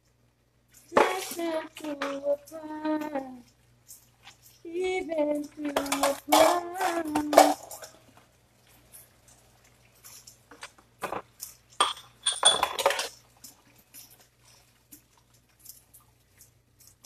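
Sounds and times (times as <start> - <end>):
woman singing: 0.9 - 3.5, 4.6 - 7.8
dishes and cutlery clinking: 5.4 - 8.1, 10.0 - 17.0.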